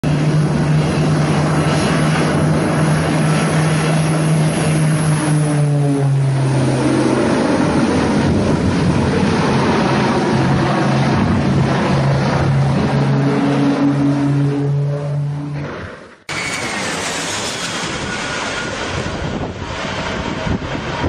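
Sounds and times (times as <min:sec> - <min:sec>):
propeller aircraft droning: 0:00.0 - 0:21.0.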